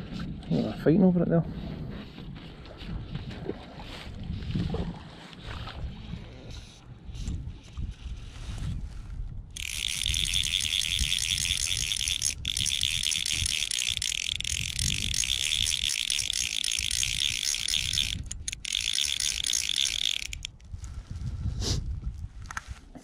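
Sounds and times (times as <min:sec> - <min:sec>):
fly reel drag ratcheting: 0:09.5 - 0:20.7.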